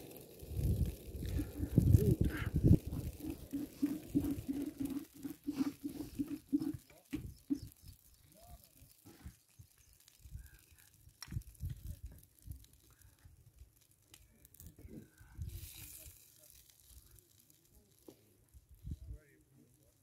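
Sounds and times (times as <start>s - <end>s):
wind gusting on microphone: 0.1s - 5.0s.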